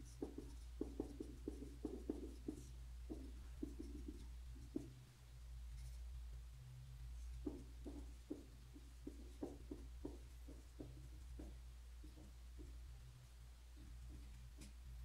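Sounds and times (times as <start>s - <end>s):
marker writing on whiteboard: 0.0s - 5.0s, 7.2s - 12.8s, 13.8s - 14.8s
low steady hum: 0.0s - 15.0s.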